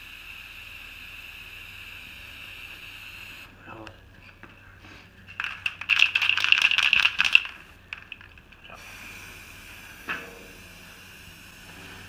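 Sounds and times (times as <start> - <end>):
spray can ball rattling: 5.3 - 8.6.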